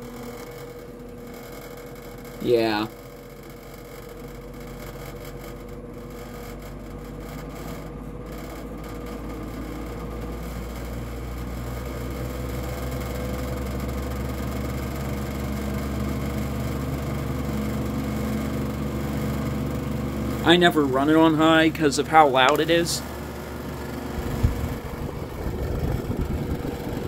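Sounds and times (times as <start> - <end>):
box fan motor hum and whir: 0.0 - 27.0.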